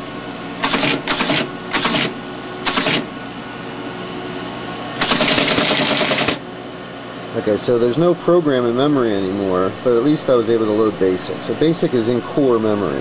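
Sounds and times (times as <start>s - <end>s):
steady hum: 0.0s - 13.0s
teletype print mechanism: 0.6s - 3.1s, 5.0s - 6.4s.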